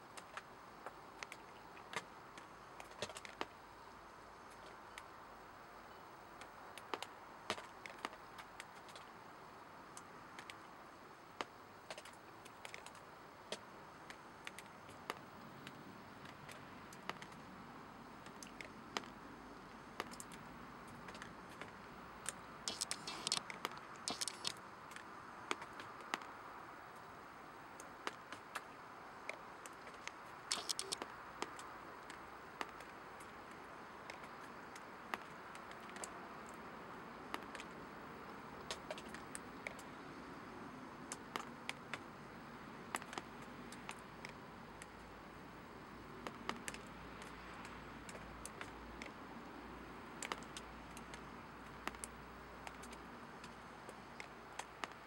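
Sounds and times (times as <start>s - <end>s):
small clicks and ticks: 0.0s - 5.2s, 6.2s - 17.5s, 18.1s - 37.9s, 38.6s - 40.4s, 41.0s - 42.3s, 42.9s - 45.2s, 45.9s - 55.0s
faint steady hiss: 0.0s - 55.0s
scratchy rustling: 22.7s - 23.4s, 24.1s - 24.5s.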